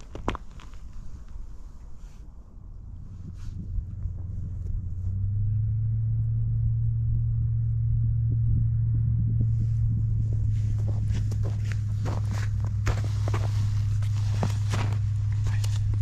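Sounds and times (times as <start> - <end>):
low engine hum: 0.0 - 16.0
footsteps crunching in snow: 10.2 - 16.0.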